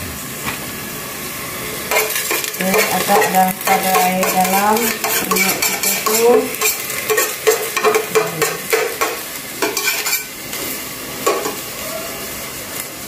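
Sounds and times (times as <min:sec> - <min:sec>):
faint sizzle of water: 0:00.0 - 0:13.0
metal spoon scraping a pot: 0:01.9 - 0:10.3.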